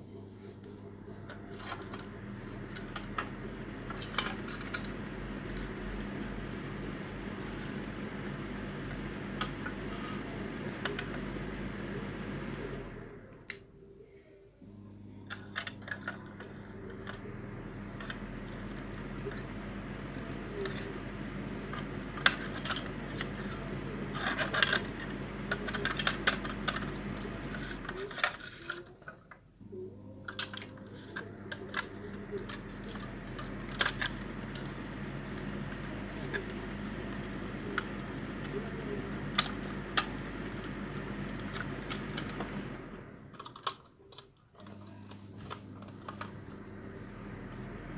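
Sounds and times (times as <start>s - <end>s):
steady low hum: 0.0s - 47.9s
plastic clicks and rattles: 43.3s - 44.8s.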